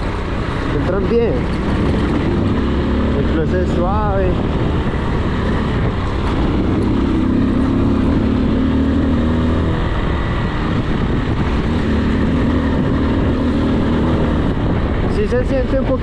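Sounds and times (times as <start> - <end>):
motorcycle engine running: 0.0 - 16.0.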